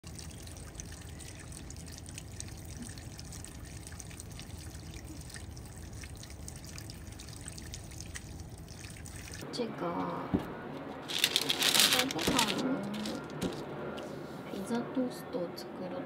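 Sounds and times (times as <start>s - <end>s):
small drip ticks: 0.0s - 9.4s
water trickling in gutter: 0.0s - 9.4s.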